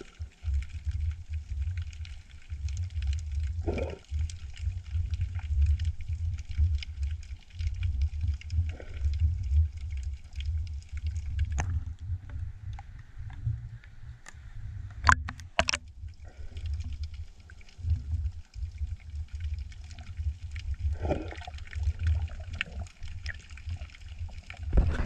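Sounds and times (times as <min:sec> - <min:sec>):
faint clicks and crackles: 0:00.0 - 0:25.0
underwater rumble: 0:00.0 - 0:25.0
water whooshes: 0:20.8 - 0:23.3, 0:24.6 - 0:25.0.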